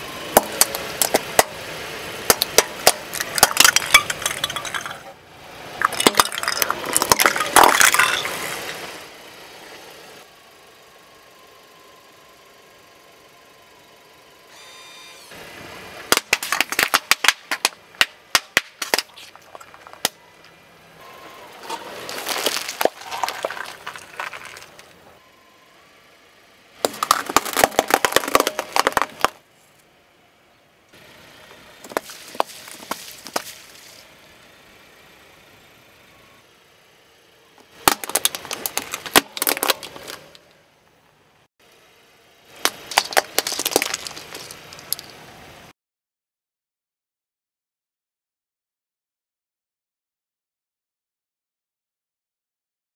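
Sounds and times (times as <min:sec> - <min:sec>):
plastic cracking under car tyre: 0:05.8 - 0:08.3, 0:16.1 - 0:20.2, 0:22.0 - 0:24.9, 0:26.8 - 0:29.4, 0:37.8 - 0:40.4, 0:42.6 - 0:45.1.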